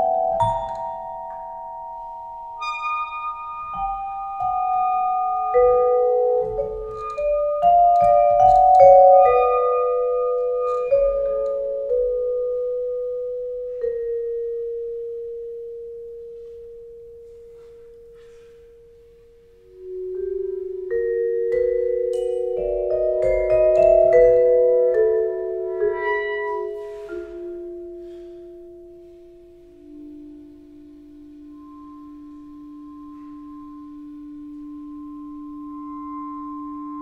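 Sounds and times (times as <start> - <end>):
clarinet held low note: 16.2 - 20.9, 25.2 - 37.0
vibraphone notes ringing: 19.8 - 29.2.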